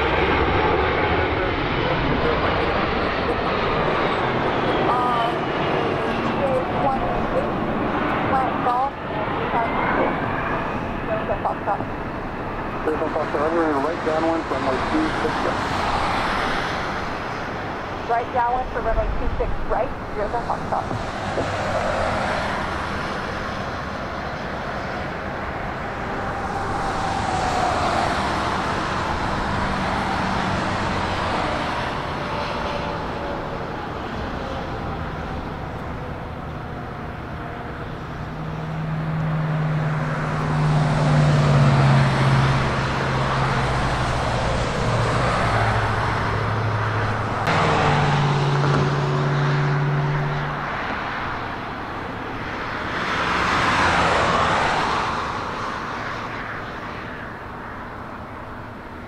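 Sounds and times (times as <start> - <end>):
falling whine: 0.0 - 36.4
low drone: 0.0 - 52.8
passing vehicle engines: 0.0 - 59.0.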